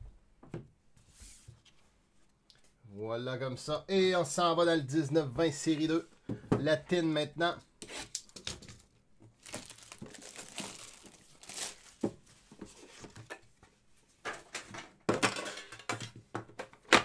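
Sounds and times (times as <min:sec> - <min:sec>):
plastic wrapping crinkling and tearing: 0:09.4 - 0:12.0.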